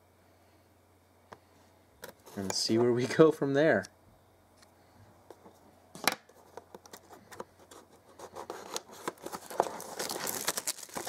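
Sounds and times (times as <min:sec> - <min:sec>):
shrink-wrap crinkling: 0:06.8 - 0:11.0.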